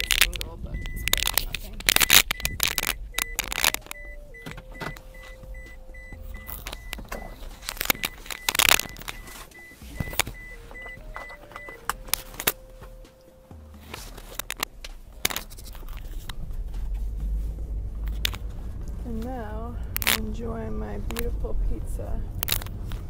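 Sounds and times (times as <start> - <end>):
faint rapid beeping: 0.0 - 13.7
phone rubbing against windbreaker: 6.0 - 10.9.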